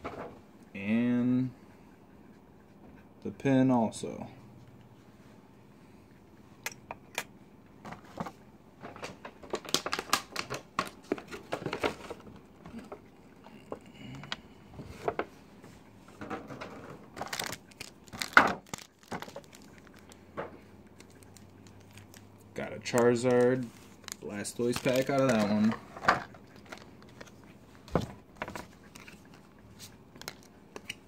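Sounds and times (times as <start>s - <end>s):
packaging crinkling and rustling: 8.0s - 13.0s, 16.6s - 20.2s, 20.9s - 31.0s.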